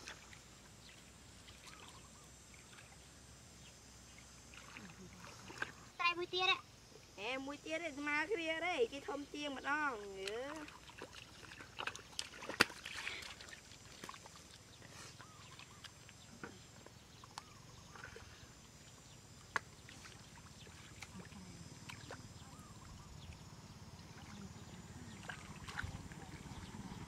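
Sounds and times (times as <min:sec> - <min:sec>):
sharp slaps on water: 0:10.2 - 0:13.0, 0:19.5 - 0:19.9
hands splashing in muddy water: 0:10.3 - 0:16.1, 0:25.1 - 0:26.3
low hum: 0:10.7 - 0:27.0.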